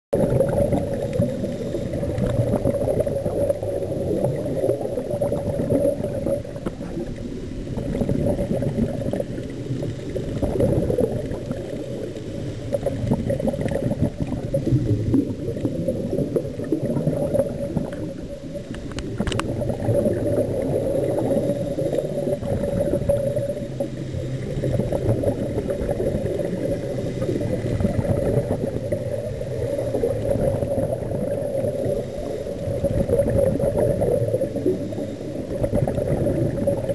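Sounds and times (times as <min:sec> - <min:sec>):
muffled underwater bubbles: 0:00.1 - 0:36.9.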